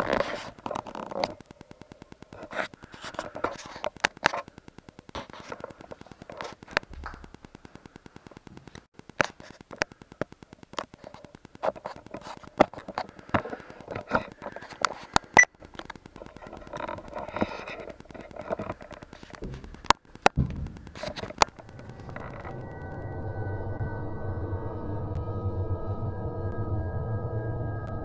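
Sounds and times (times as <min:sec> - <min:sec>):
sharp clicks and pops: 0:00.0 - 0:23.0
muffled noise: 0:00.0 - 0:23.3
electrical interference buzz: 0:00.0 - 0:25.2.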